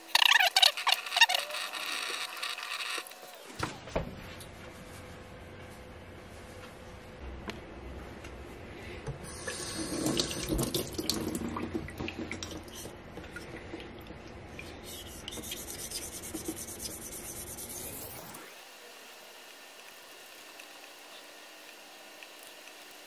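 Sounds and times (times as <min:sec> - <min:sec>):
tap water running into sink: 0:09.3 - 0:14.0.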